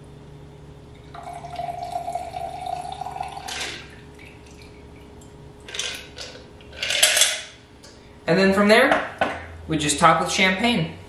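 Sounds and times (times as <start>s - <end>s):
thin stream of liquid ringing: 1.0s - 4.8s
liquid dripping: 1.0s - 5.7s.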